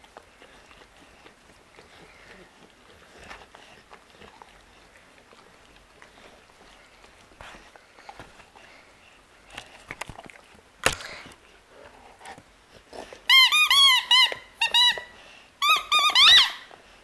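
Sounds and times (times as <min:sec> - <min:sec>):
squeaky toy squeaking: 0:13.3 - 0:16.7.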